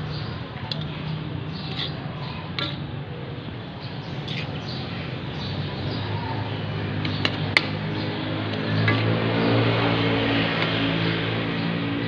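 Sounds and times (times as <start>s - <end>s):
metal spatula scraping pan: 1.6s - 2.0s, 4.2s - 4.8s, 8.8s - 9.5s.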